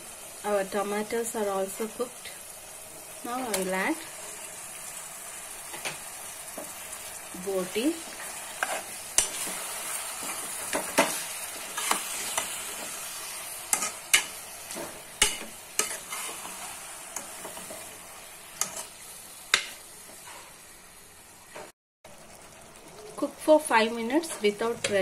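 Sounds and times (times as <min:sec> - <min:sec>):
meat sizzling in a pot: 0:00.0 - 0:25.0
metal spoon scraping a pot: 0:08.2 - 0:12.6.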